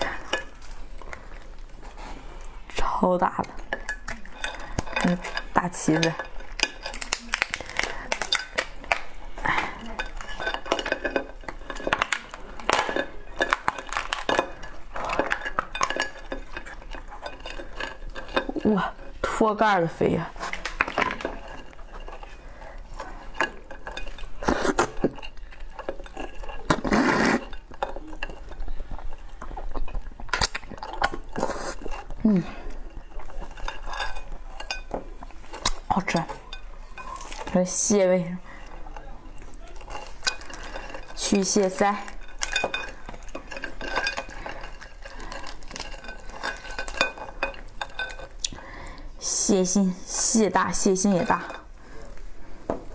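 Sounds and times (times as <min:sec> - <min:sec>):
crab shell crackling and snapping: 0:03.7 - 0:18.7, 0:23.4 - 0:32.2
crab shell cracking: 0:06.5 - 0:09.3, 0:11.5 - 0:18.4
loud slurp: 0:26.7 - 0:27.5.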